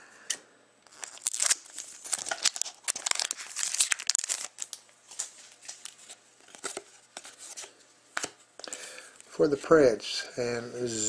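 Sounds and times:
foil wrapper tearing and crinkling: 0.8 - 6.7
cards rustling and clicking: 0.9 - 8.8.

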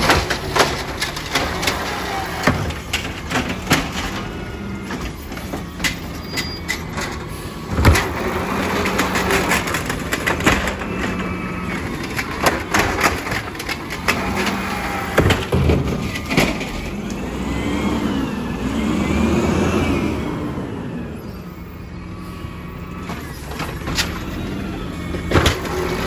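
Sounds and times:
truck engine revving: 0.0 - 26.0.

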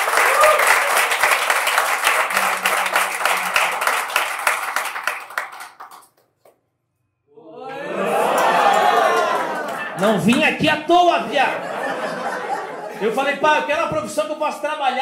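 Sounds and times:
audience applauding: 0.0 - 6.3, 8.0 - 10.5.

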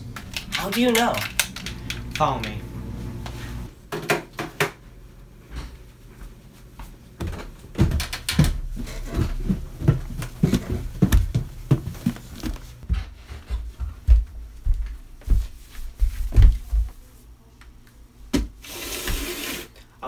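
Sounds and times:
footsteps in socks on stairs: 5.5 - 17.2.

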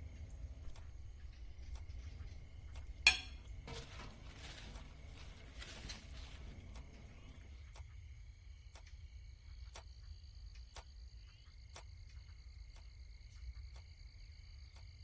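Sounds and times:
low hum: 0.0 - 9.6
night insects chirring: 0.0 - 15.0
clock ticking: 0.1 - 3.7, 6.6 - 8.0.

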